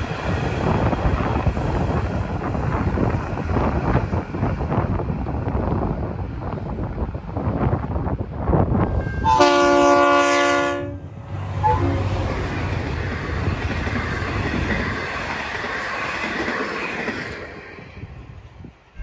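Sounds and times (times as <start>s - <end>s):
wind buffeting microphone: 0.0s - 10.2s, 10.8s - 19.0s
train wheels rumbling on rails: 0.0s - 19.0s
train horn chord: 9.0s - 12.2s.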